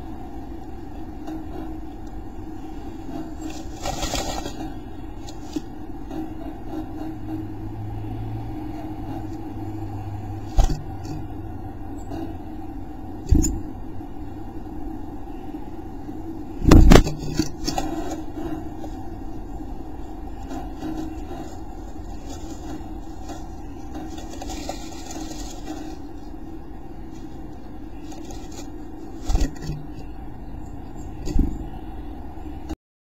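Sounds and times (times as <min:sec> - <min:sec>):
steady low hum: 0:00.0 - 0:32.8
bird rustling nest material: 0:00.3 - 0:07.4, 0:08.8 - 0:11.4, 0:14.6 - 0:30.4.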